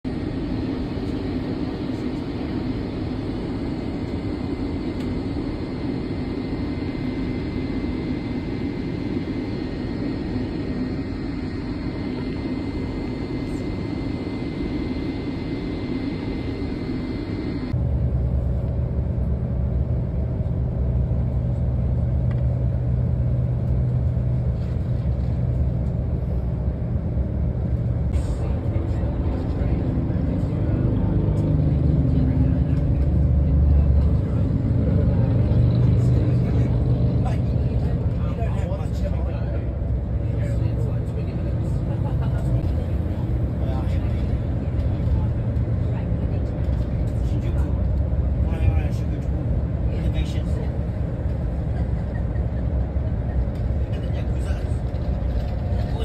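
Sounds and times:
airliner cabin drone: 0:00.0 - 0:56.0
faint high whine: 0:00.2 - 0:18.0.

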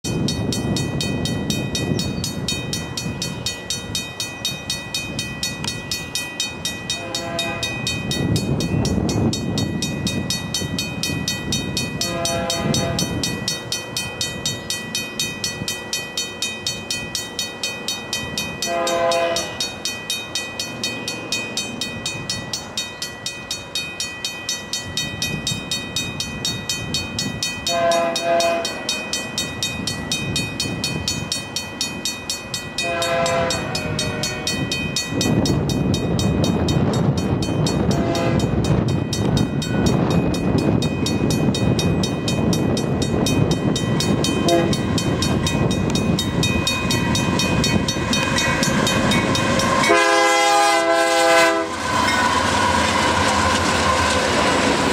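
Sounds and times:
crossing bell ringing: 0:00.0 - 0:54.9
train air horn blasts: 0:06.9 - 0:07.9, 0:12.0 - 0:13.3, 0:18.6 - 0:19.7, 0:27.6 - 0:28.9, 0:32.8 - 0:34.6, 0:37.9 - 0:38.6, 0:44.4 - 0:44.8, 0:49.7 - 0:51.8.

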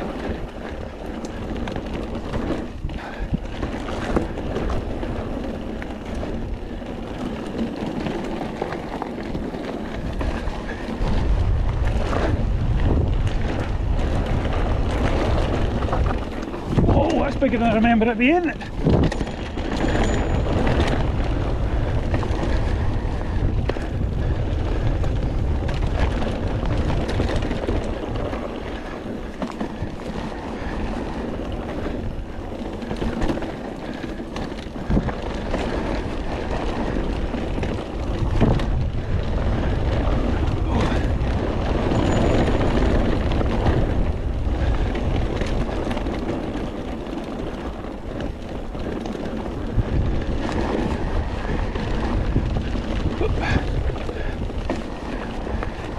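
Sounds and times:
bike knocks and rattles: 0:00.0 - 0:55.9
tyres rolling on trail: 0:00.0 - 0:55.9
wind buffeting microphone: 0:00.0 - 0:55.9.

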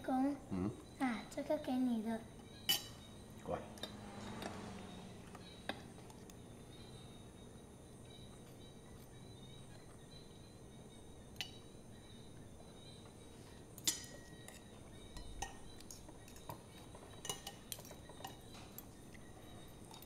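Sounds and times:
cutlery clinking on plates: 0:02.7 - 0:03.0, 0:13.8 - 0:18.9.

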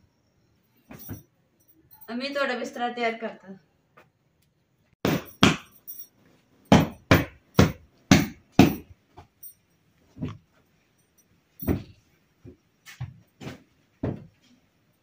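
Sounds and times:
hand slapping pillows: 0:05.1 - 0:05.8, 0:06.7 - 0:08.9.

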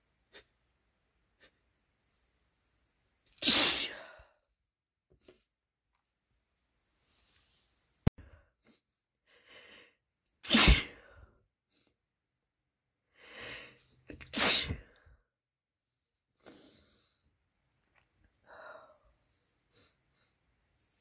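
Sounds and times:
person sneezing: 0:03.4 - 0:04.2, 0:10.4 - 0:11.2, 0:14.2 - 0:14.9
breath: 0:08.2 - 0:10.0, 0:13.1 - 0:14.0, 0:16.4 - 0:17.3, 0:18.4 - 0:20.4.

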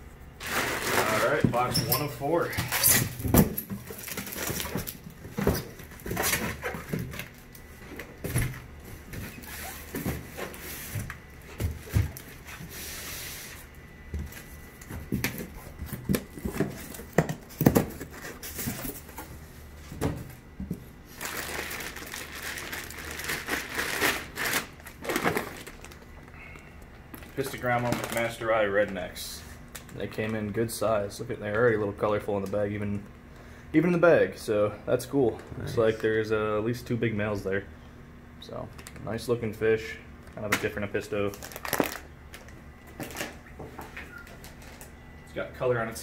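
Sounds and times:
plastic bag crinkling: 0:00.4 - 0:01.7, 0:03.8 - 0:07.6, 0:21.1 - 0:30.1, 0:41.3 - 0:43.4.

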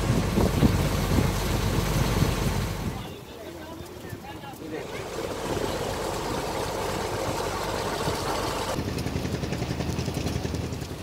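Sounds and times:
boat engine humming: 0:00.0 - 0:11.0
water and wind noise: 0:00.0 - 0:11.0.

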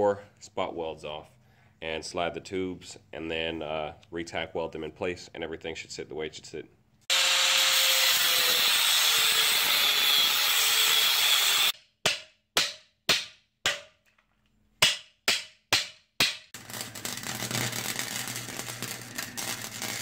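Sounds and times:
angle grinder grinding metal: 0:07.1 - 0:11.8, 0:16.6 - 0:20.0
welder crackling with hum: 0:16.6 - 0:20.0.

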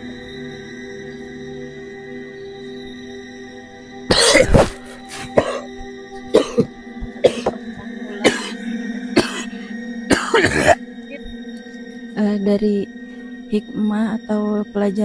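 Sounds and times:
ambient background music: 0:00.0 - 0:15.0
man coughing: 0:04.1 - 0:05.7, 0:06.3 - 0:08.6, 0:09.2 - 0:10.8.

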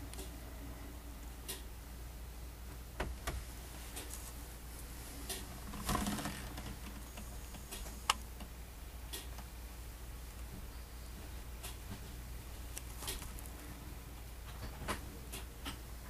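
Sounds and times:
steady low hum: 0:00.0 - 0:16.0
crackling rustle: 0:03.2 - 0:08.5, 0:10.2 - 0:15.8.

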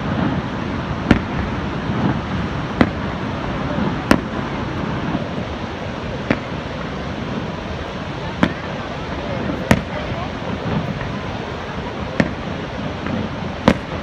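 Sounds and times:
steady rushing noise: 0:00.0 - 0:14.0
fireworks shells bursting: 0:01.0 - 0:03.2, 0:12.2 - 0:14.0.

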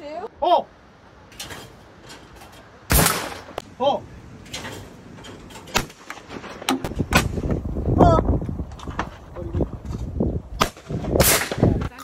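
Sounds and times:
shotgun shots: 0:02.9 - 0:03.6, 0:10.6 - 0:11.8.

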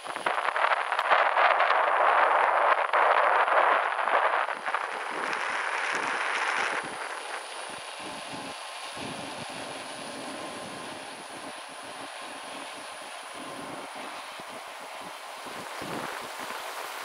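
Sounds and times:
road noise: 0:00.0 - 0:17.0
wind rushing over microphone: 0:00.0 - 0:17.0.

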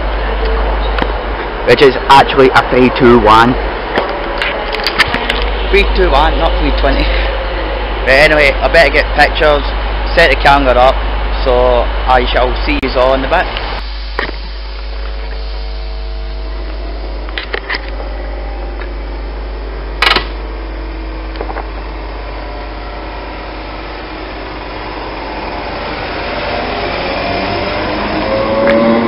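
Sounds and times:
traction motors whining: 0:00.0 - 0:29.0
train equipment humming: 0:00.0 - 0:29.0
sharp click: 0:20.0 - 0:20.4.

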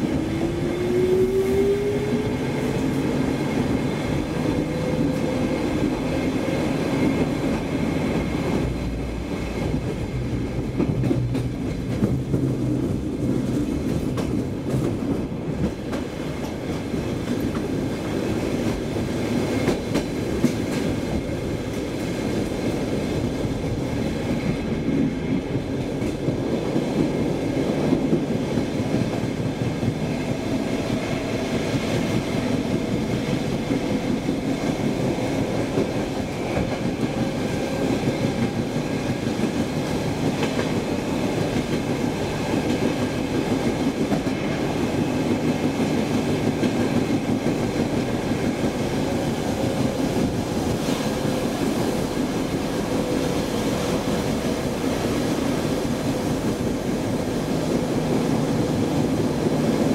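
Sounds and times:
faint train whine: 0:00.0 - 0:59.9
train wheels rumbling on rails: 0:00.0 - 0:59.9.

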